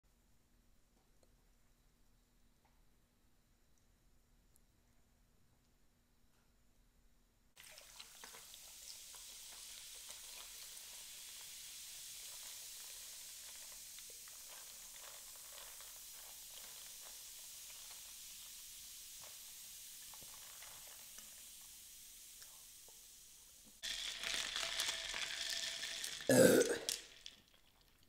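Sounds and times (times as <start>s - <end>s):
soda fizzing and crackling: 7.6s - 28.0s
soda pouring onto ice: 7.6s - 28.0s.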